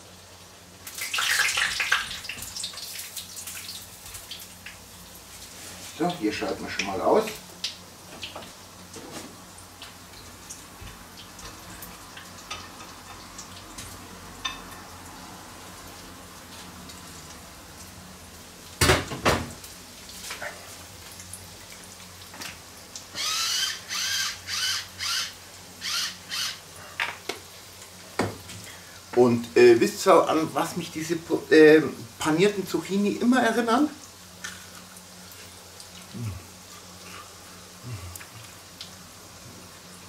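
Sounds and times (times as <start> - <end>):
faint sizzling in hot oil: 0.0 - 40.0.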